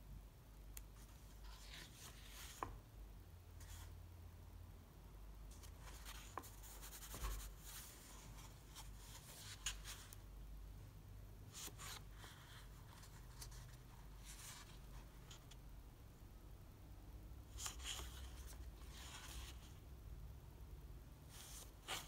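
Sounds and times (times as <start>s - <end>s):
paper pages rustling: 17.5s - 19.7s.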